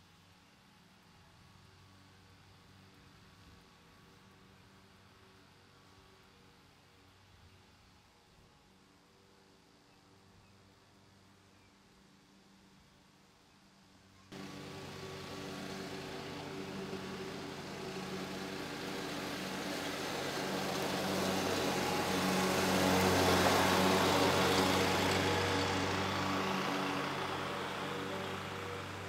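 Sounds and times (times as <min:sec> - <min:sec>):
riding mower engine hum: 0:14.3 - 0:29.0.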